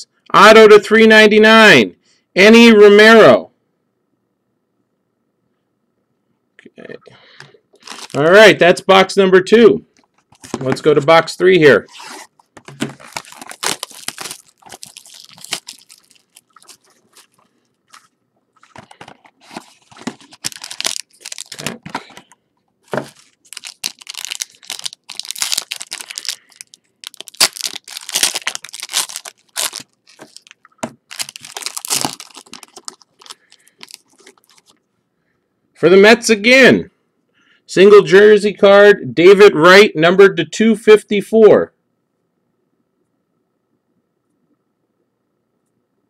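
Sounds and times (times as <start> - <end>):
plastic wrapping crinkling and tearing: 7.8 - 8.3, 11.9 - 34.8.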